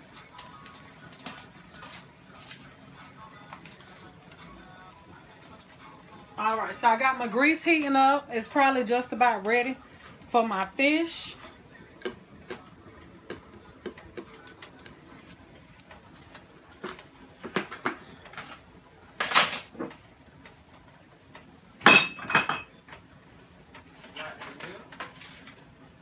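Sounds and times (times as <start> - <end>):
kitchenware clattering: 21.8 - 22.8.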